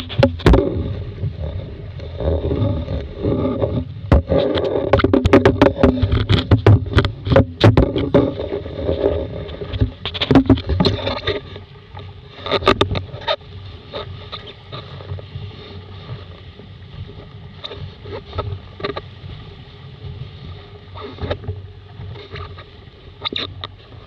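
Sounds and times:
knocks and bangs of boat: 0.0 - 1.6, 2.2 - 13.4
water rushing along hull: 0.0 - 24.0
wind: 0.0 - 24.0.

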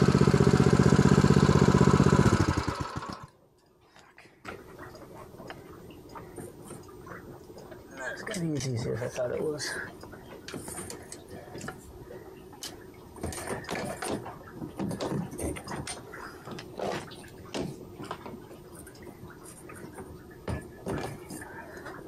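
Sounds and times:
low steady background noise: 3.3 - 22.0
irregular knocks and clunks: 12.6 - 18.4, 19.8 - 22.0.

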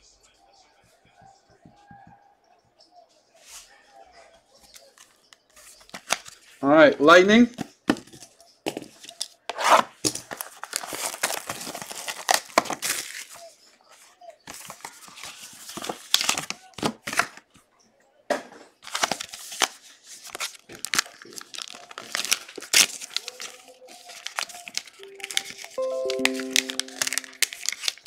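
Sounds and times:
packaging being torn and crinkled: 9.0 - 13.4, 14.6 - 17.4, 18.8 - 28.0.

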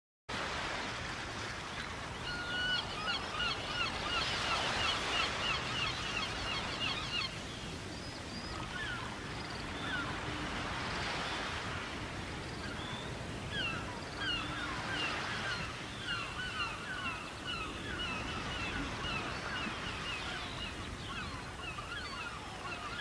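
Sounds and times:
gull calling: 12.6 - 23.0.

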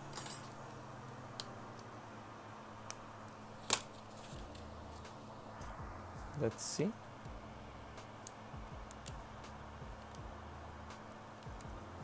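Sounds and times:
tools and phone parts clicking: 0.0 - 0.7
faint steady hum: 0.0 - 12.0.

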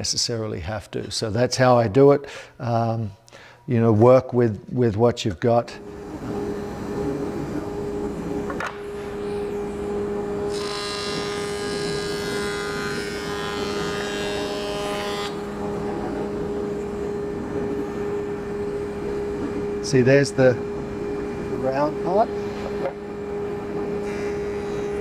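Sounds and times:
jointer humming: 5.6 - 25.0.

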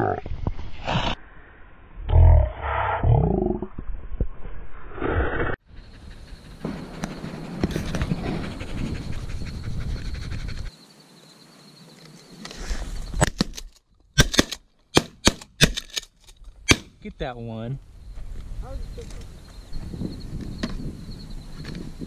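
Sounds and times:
dog panting: 5.7 - 10.8
shotgun shots: 14.2 - 15.9, 16.7 - 17.0.

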